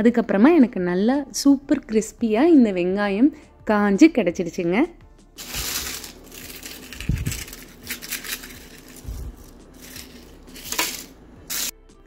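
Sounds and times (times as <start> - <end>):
dried onion crackling and crunching: 5.4 - 11.7.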